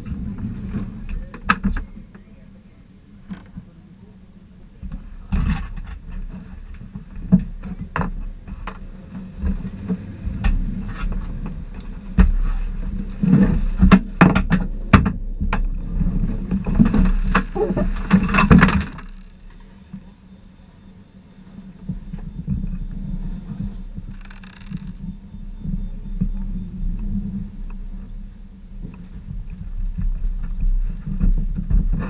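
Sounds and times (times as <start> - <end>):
vehicle rolling over road: 4.6 - 20.7.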